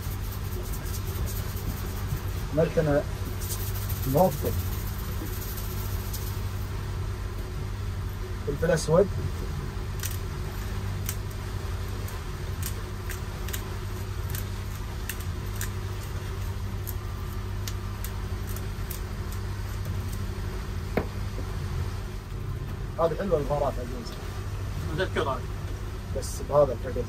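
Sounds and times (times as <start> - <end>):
boat engine idling: 0.0 - 27.0.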